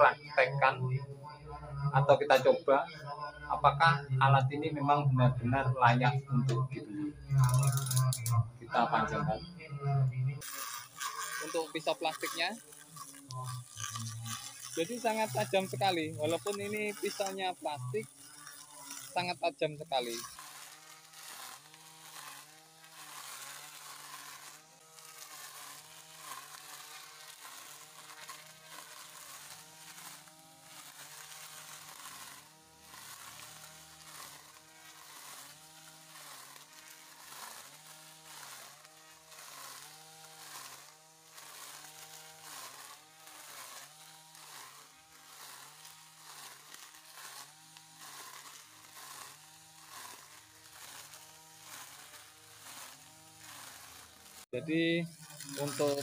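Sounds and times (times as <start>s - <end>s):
grass crackling as cut: 0.0s - 56.0s
grass trimmer motor whine: 0.0s - 56.0s.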